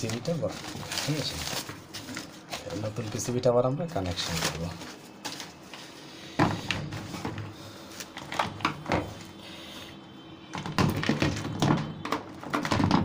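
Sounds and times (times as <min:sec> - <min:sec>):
plastic knocks and clicks: 0:10.5 - 0:13.0.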